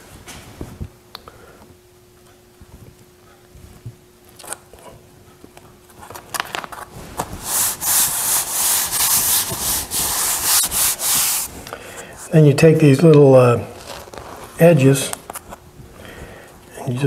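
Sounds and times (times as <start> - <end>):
hands rubbing cardboard: 6.9 - 11.6.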